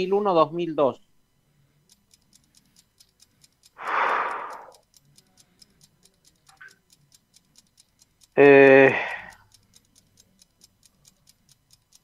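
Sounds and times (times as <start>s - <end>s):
countdown timer ticking: 3.7s - 4.8s
breathy rush of noise: 3.8s - 4.8s.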